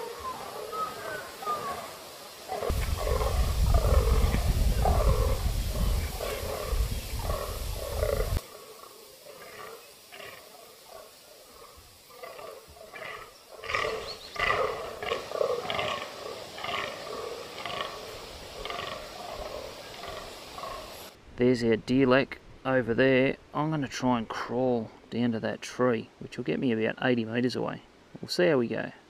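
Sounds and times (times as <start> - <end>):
deer croaking groans: 2.5 - 20.9
wind rumble on microphone: 2.7 - 8.4.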